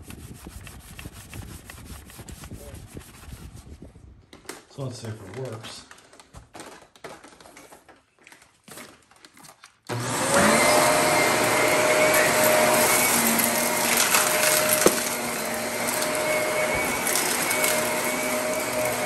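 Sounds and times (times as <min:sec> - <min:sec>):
vacuum cleaner motor whine: 0:09.9 - 0:19.0
vacuum suction on carpet: 0:09.9 - 0:19.0.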